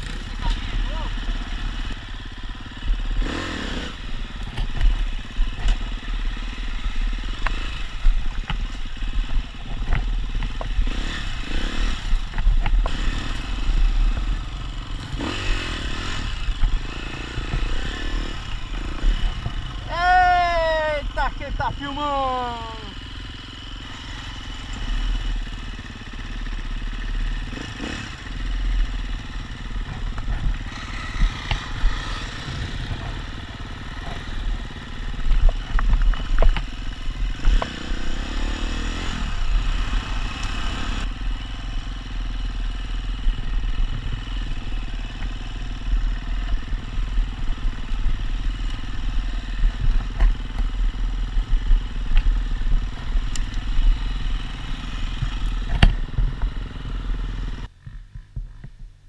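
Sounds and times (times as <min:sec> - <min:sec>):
dirt bike engine running: 0:00.0 - 0:59.0
bike knocks and rattles: 0:55.2 - 0:56.7.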